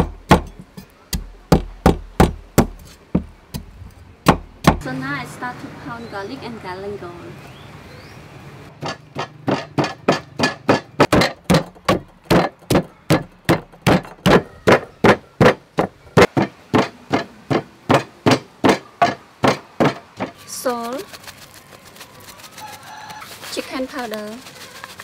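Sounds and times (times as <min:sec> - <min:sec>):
pestle pounding in a mortar: 0:00.0 - 0:04.8, 0:08.8 - 0:22.9.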